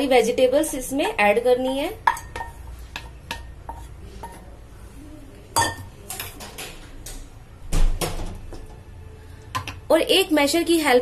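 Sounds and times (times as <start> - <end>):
spatula scraping a pan: 2.1 - 4.4.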